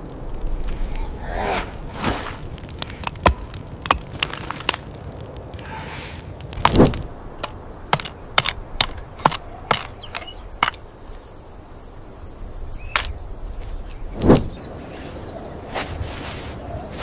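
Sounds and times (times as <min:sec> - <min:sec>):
faint outdoor hiss: 0:00.0 - 0:17.0
hand tool tapping wood: 0:07.4 - 0:10.8.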